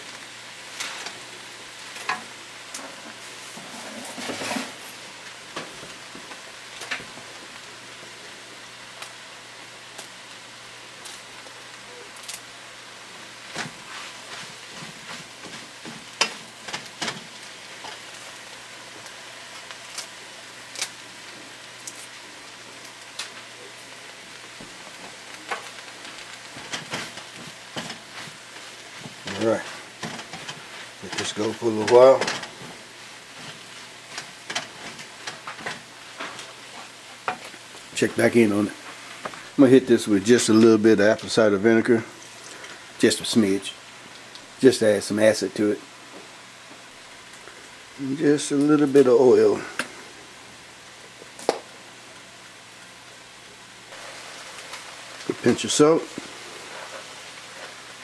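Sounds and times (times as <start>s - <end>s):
kale sizzling in pan: 0.0s - 58.0s
wooden spoon tapping and scraping pan: 13.5s - 18.0s, 26.5s - 32.7s, 37.2s - 37.6s.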